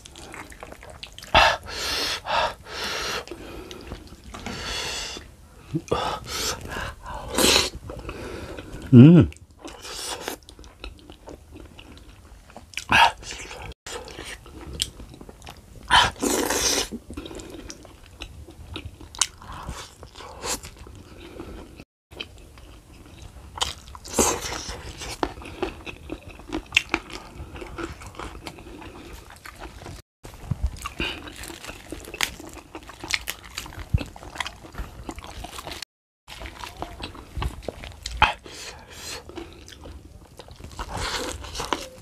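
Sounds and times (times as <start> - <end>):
wet chewing: 0.0 - 2.3, 5.2 - 42.0
crunchy bites: 30.6 - 38.3.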